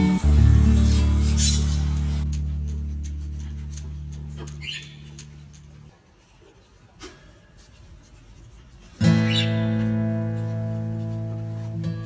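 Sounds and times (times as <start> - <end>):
bird beak scratching wood: 1.4 - 5.9, 7.6 - 11.7.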